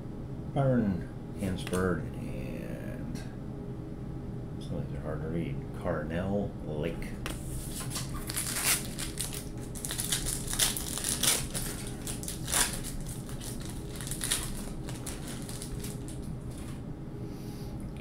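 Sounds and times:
foil wrapper crinkling and tearing: 7.6s - 16.8s.

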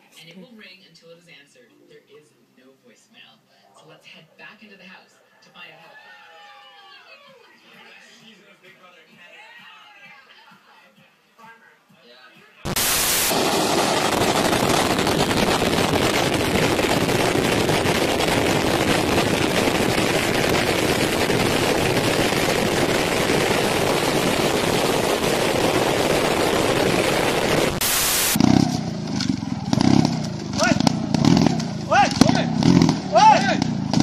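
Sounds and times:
sand battering microphone: 12.7s - 28.9s
jet engine roar: 12.7s - 34.0s.

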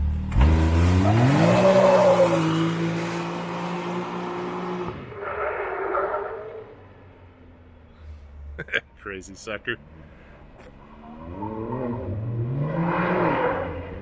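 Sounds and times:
engine revving at full throttle: 11.1s - 14.0s.

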